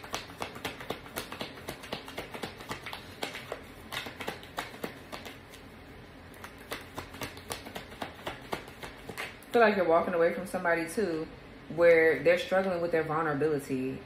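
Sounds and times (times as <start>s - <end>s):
cards being shuffled: 0.0s - 5.7s, 6.3s - 9.4s.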